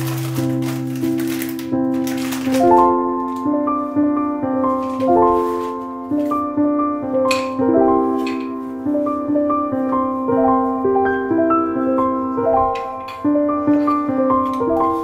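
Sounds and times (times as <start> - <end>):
slow piano melody: 0.0 - 15.0.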